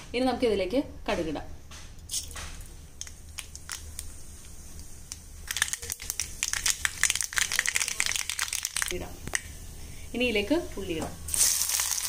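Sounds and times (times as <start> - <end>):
seeds popping in hot oil: 2.0 - 9.6, 11.3 - 12.0.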